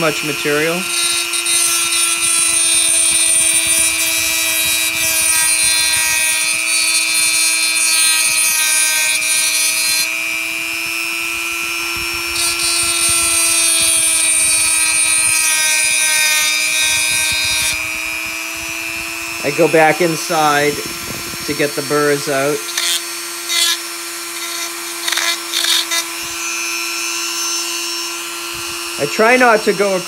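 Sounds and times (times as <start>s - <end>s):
rotary tool whining: 0.0s - 30.0s
sanding bit grinding metal: 0.0s - 30.0s.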